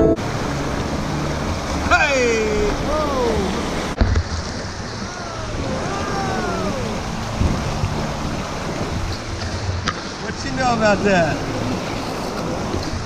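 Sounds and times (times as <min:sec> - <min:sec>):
river rushing over rocks: 0:00.0 - 0:13.0.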